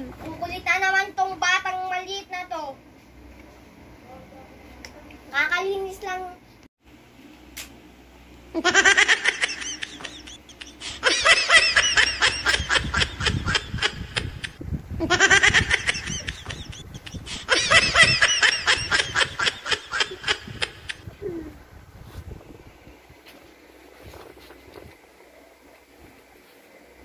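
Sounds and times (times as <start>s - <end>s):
young child giggling: 8.6s - 21.6s.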